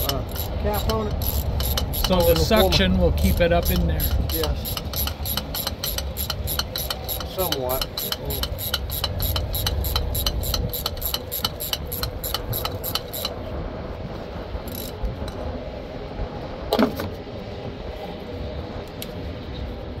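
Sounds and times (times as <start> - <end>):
ratchet driver clicking: 0.0 - 13.4, 14.7 - 15.0
engine humming: 0.0 - 20.0.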